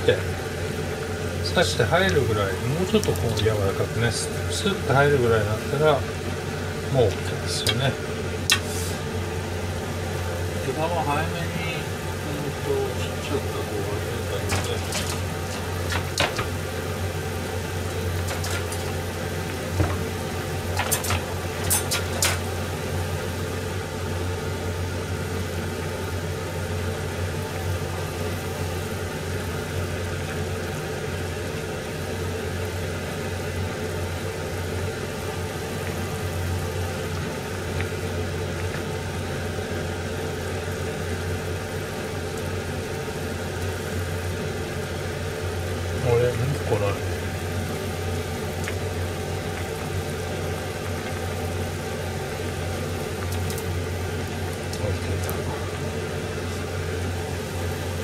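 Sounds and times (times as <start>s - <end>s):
steady low hum: 0.0s - 58.0s
soup simmering: 14.6s - 46.0s, 47.1s - 58.0s.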